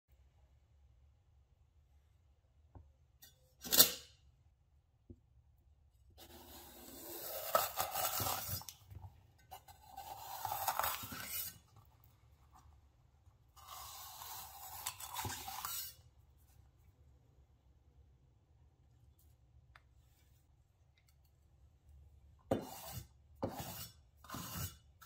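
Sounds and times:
knife slicing crisp pepper: 6.4s - 8.7s, 9.5s - 11.6s, 13.6s - 16.0s.

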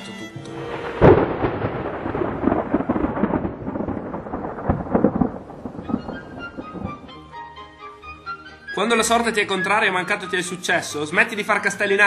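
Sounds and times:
thunderclap with crackling rumble: 0.5s - 7.7s.

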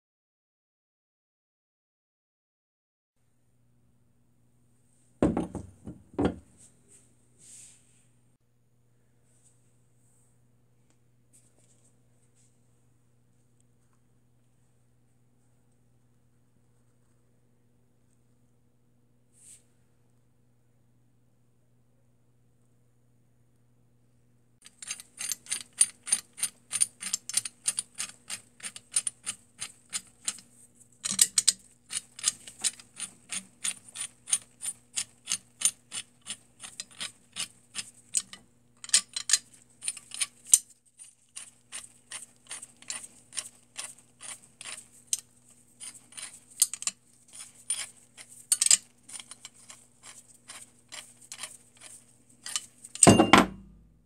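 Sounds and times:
metal clunk: 53.0s - 53.8s.

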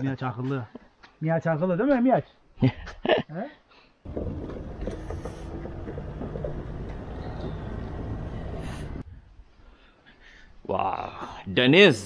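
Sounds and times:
vehicle engine humming: 4.1s - 9.0s.

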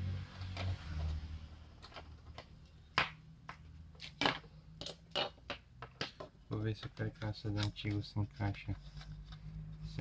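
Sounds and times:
plastic parts clicking and knocking: 1.8s - 8.2s.

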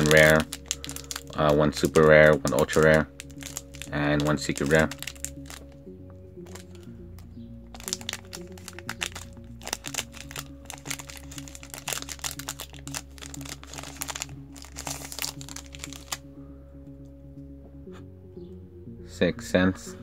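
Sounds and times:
foil pack crinkling: 0.0s - 5.8s, 6.4s - 6.8s, 7.7s - 16.3s
background music: 0.0s - 20.0s.

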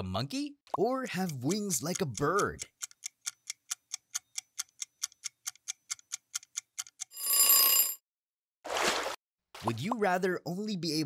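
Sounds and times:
clock ticking quickly: 0.8s - 7.1s
alarm clock bell ring: 7.2s - 8.0s.

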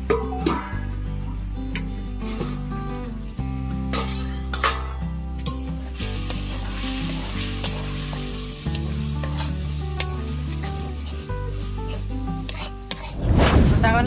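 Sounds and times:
low background music: 0.0s - 14.0s
metal ladle scraping pan: 3.9s - 5.6s, 10.7s - 13.2s
paste sizzling in a pan: 5.7s - 13.2s.

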